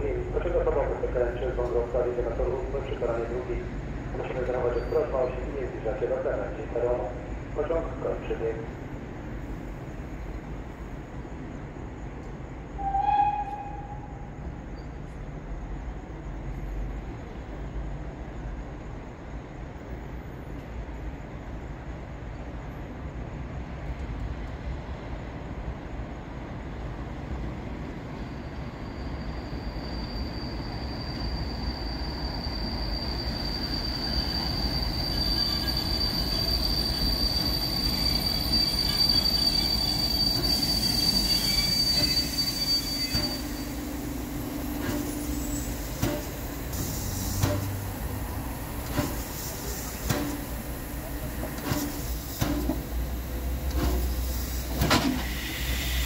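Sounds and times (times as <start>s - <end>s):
steam train rumble: 0.0s - 56.0s
high-pitched brake squeal: 4.6s - 5.4s, 12.8s - 15.0s, 28.3s - 48.0s, 48.7s - 53.0s, 53.6s - 56.0s.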